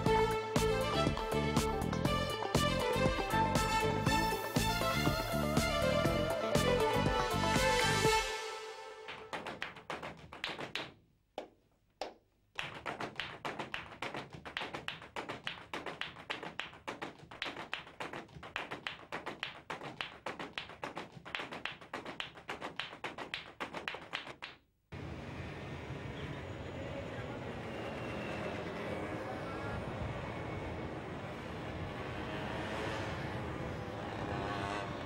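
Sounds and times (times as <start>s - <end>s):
heeled shoes tapping on tiles: 9.1s - 24.6s.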